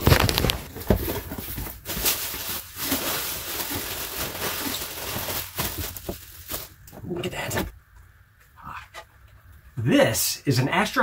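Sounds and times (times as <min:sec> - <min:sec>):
bubble wrap crinkling: 0:00.0 - 0:06.9.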